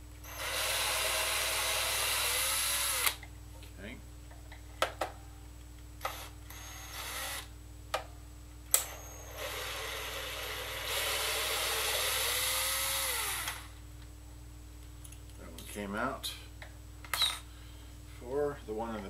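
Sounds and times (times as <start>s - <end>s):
cordless drill whining: 0.3s - 3.2s, 6.0s - 7.5s, 8.8s - 13.7s.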